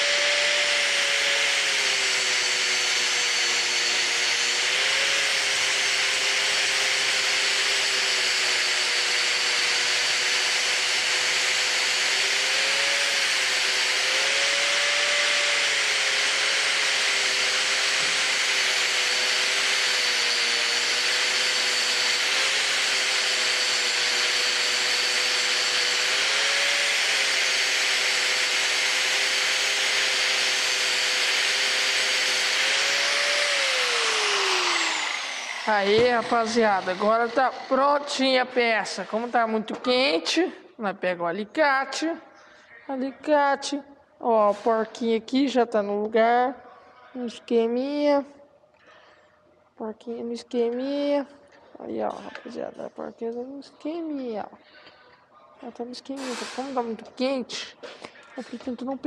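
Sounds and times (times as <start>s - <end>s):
angle grinder grinding metal: 0.0s - 40.5s, 56.0s - 59.0s.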